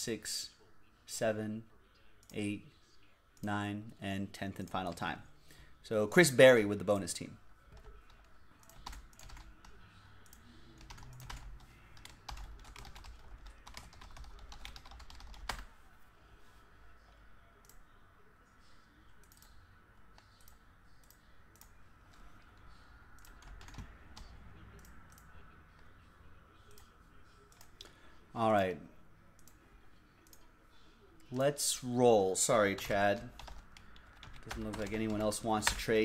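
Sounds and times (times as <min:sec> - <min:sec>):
keyboard typing: 0:07.7 - 0:15.7, 0:19.2 - 0:25.9, 0:32.8 - 0:36.0.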